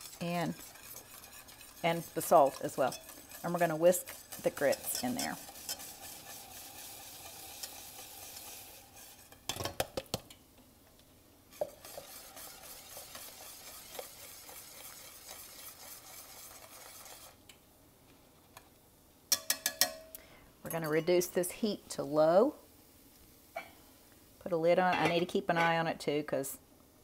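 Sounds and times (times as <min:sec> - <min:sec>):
wire whisk stirring: 0:00.0 - 0:09.6, 0:11.5 - 0:17.4, 0:19.3 - 0:20.0
grits poured into boiling liquid: 0:00.0 - 0:10.4, 0:11.4 - 0:17.5
bacon sizzling faintly: 0:00.0 - 0:19.4, 0:21.2 - 0:24.6
metal clinking on saucepan: 0:00.5 - 0:06.5, 0:19.3 - 0:21.2.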